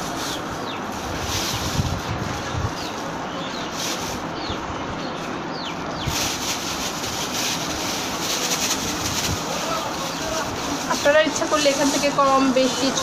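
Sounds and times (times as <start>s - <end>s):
plastic bag crinkling: 6.0s - 13.0s.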